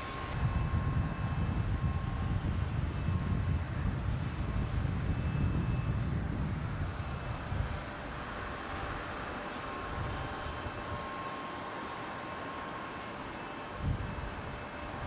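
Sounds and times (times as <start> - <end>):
wind rumbling on microphone: 0.0 - 9.1, 13.7 - 15.0
distant machinery hum: 0.0 - 15.0
faint high whining tones: 0.0 - 15.0.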